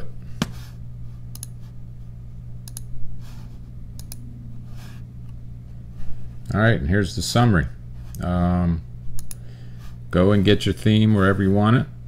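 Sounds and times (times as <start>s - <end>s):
low electrical hum: 0.0s - 12.0s
sharp computer control clicks: 2.6s - 2.9s, 4.0s - 4.2s, 9.2s - 9.4s.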